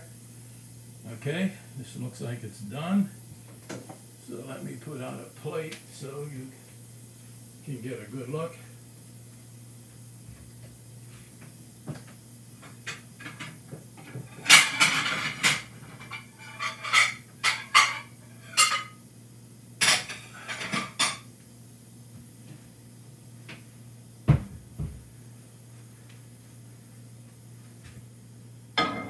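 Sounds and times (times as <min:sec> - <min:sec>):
plates clattering and clinking: 0:12.9 - 0:19.0, 0:19.8 - 0:21.3, 0:28.8 - 0:29.0
cupboard door thud: 0:24.3 - 0:25.0.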